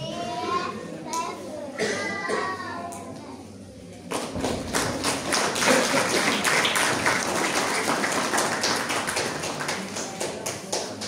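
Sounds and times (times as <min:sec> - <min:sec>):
crowd hubbub: 0:00.0 - 0:11.0
crowd clapping: 0:04.1 - 0:11.0.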